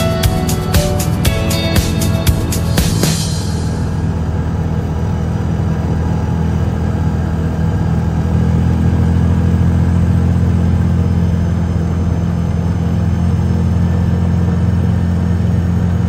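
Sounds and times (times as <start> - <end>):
vehicle engine running: 0.0 - 16.0.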